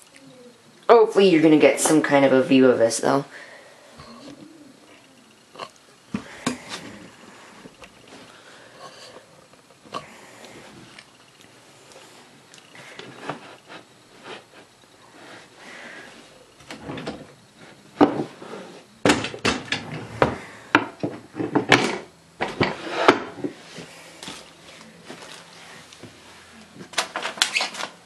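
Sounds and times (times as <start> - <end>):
office chair parts knocking and clicking: 19.0 - 23.6.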